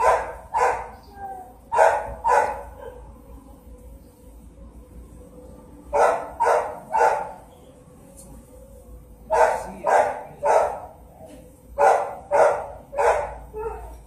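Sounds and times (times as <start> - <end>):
dog barking: 0.0 - 1.0, 1.7 - 3.1, 6.0 - 7.4, 9.3 - 11.0, 11.8 - 14.0.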